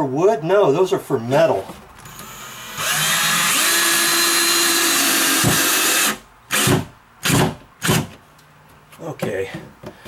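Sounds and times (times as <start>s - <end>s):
cordless drill driving screw: 2.1s - 8.0s.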